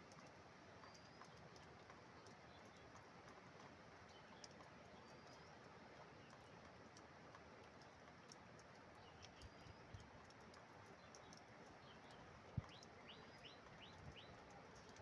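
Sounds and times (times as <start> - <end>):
faint steady hiss: 0.0 - 15.0
light ticks: 0.0 - 15.0
faint bird chirps: 11.0 - 15.0.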